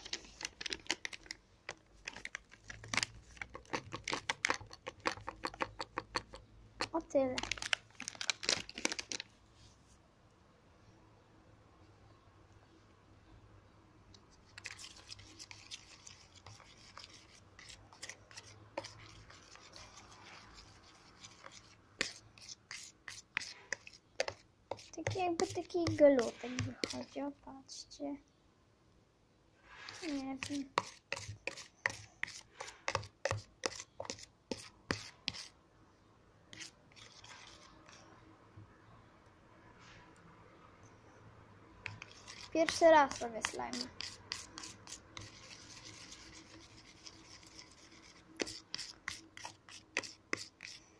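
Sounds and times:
metal spoon scraping plastic tub: 0.0s - 7.6s, 14.5s - 27.3s, 29.7s - 35.5s, 41.8s - 50.8s.

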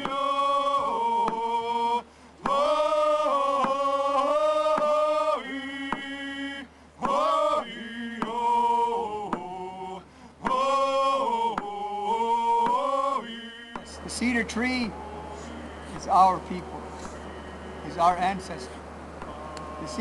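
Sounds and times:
man chanting in long notes: 10.6s - 20.0s.

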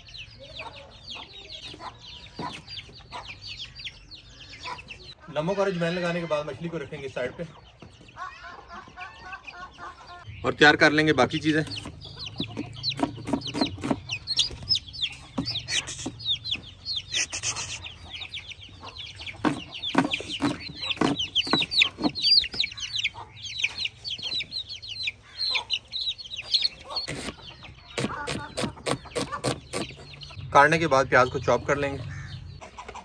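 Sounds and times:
chicks peeping: 0.0s - 33.0s
knife chopping on wooden board: 12.4s - 14.1s, 19.4s - 22.2s, 28.0s - 30.0s.

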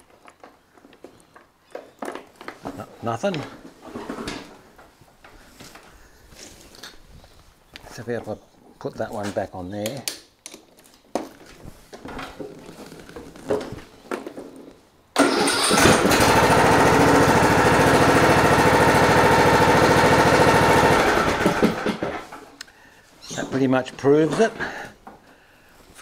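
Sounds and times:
starter cranking engine: 15.2s - 22.4s
lawn tractor engine running: 15.2s - 22.5s.

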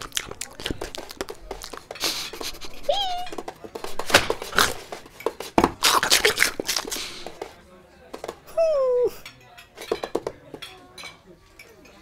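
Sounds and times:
cartoon chewing crunches: 0.0s - 7.5s.

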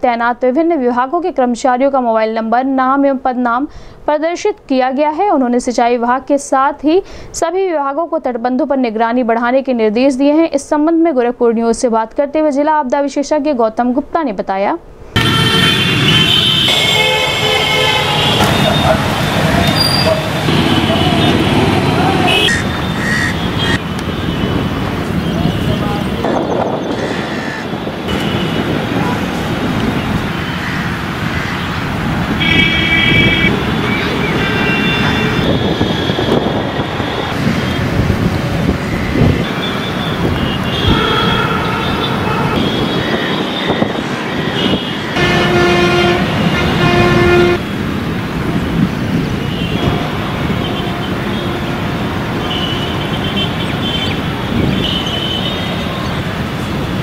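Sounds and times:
road traffic: 0.0s - 57.0s
vehicle horns: 15.2s - 31.8s, 32.4s - 38.0s, 38.8s - 47.8s, 49.1s - 56.9s.

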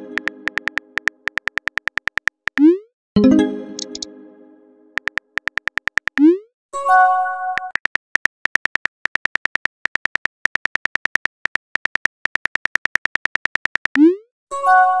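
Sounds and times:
phone keyboard clicks: 0.1s - 2.6s, 3.8s - 4.1s, 5.0s - 6.2s, 7.6s - 14.0s
multi-tone chime: 3.2s - 4.5s.

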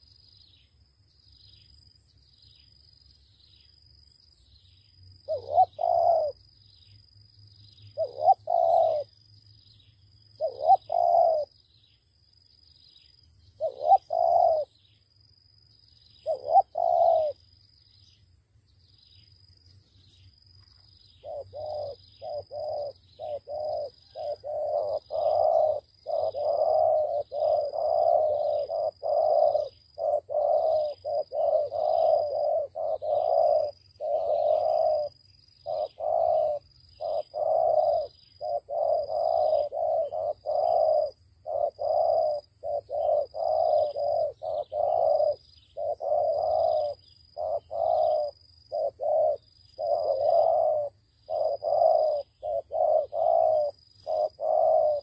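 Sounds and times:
doves cooing: 5.3s - 6.4s, 8.0s - 9.1s, 10.4s - 11.6s, 13.6s - 14.8s, 16.2s - 17.4s, 21.2s - 55.0s.

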